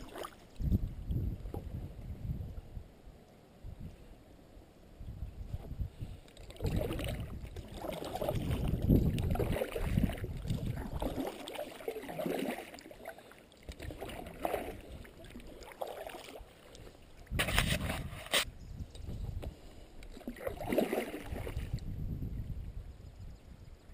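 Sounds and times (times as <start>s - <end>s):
paddle splashing in water: 0.0s - 0.6s, 6.4s - 18.5s, 20.1s - 21.8s
wind rumble on microphone: 0.0s - 11.3s, 17.2s - 23.9s.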